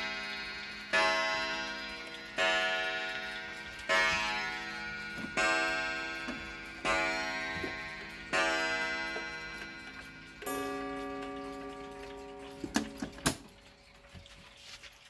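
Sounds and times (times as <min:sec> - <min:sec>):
clock gong striking: 0:00.0 - 0:13.5.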